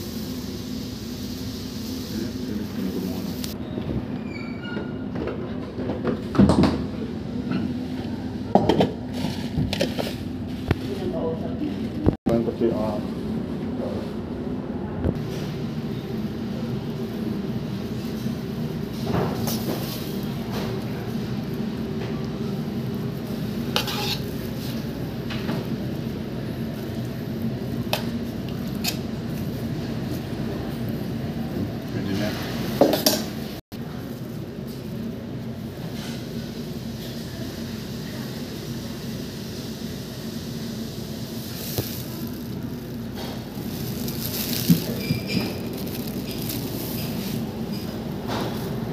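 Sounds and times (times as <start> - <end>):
metal food pan and lid clanking: 23.7 - 24.3.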